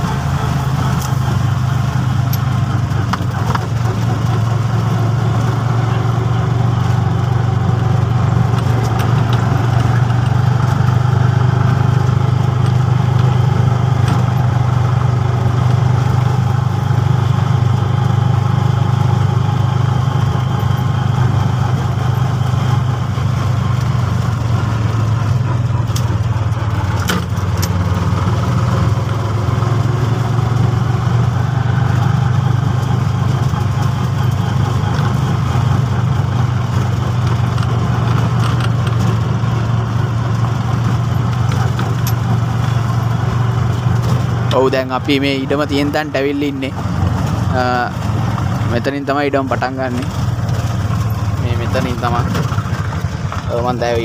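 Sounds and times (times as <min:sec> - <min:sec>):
auto-rickshaw engine running: 0:00.0 - 0:54.0
sharp clicks or knocks: 0:26.8 - 0:27.8.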